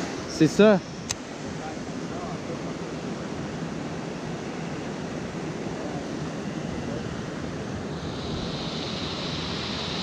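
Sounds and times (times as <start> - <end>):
higher hiss: 7.8 - 10.0.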